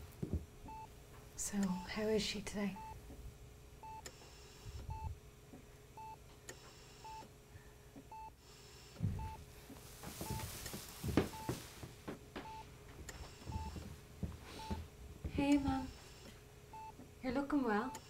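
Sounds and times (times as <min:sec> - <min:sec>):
medical monitor beeping: 0:00.6 - 0:01.0, 0:01.6 - 0:02.0, 0:02.8 - 0:03.1, 0:03.8 - 0:05.2, 0:06.0 - 0:07.3, 0:08.1 - 0:09.5, 0:10.2 - 0:11.6, 0:12.4 - 0:13.9, 0:14.5 - 0:14.8, 0:15.4 - 0:17.1, 0:17.7 - 0:18.0
soft bumps and rustles: 0:09.0 - 0:15.9.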